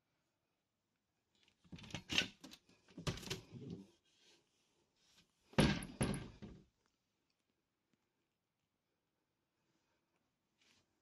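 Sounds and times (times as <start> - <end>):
door knocking and rattling: 5.6 - 6.6.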